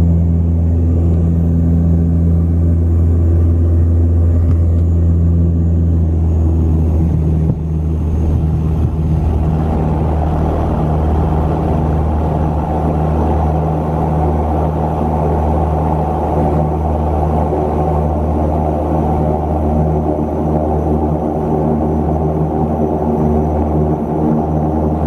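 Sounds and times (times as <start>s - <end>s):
turboprop engines droning: 0.0s - 25.0s
wheels rumbling on runway: 0.0s - 25.0s
rushing noise: 7.7s - 15.9s.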